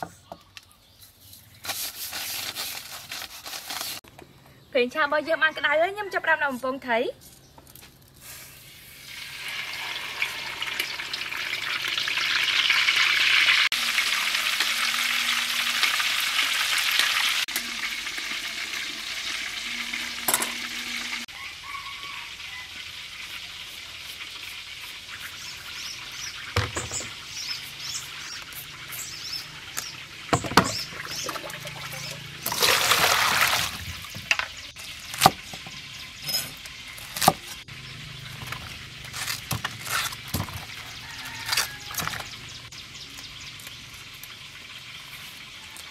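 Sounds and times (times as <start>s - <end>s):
vegetables being handled: 1.0s - 4.1s
fish sizzling in hot oil: 8.2s - 30.9s, 43.4s - 45.9s
water in a plastic bowl: 30.2s - 34.6s.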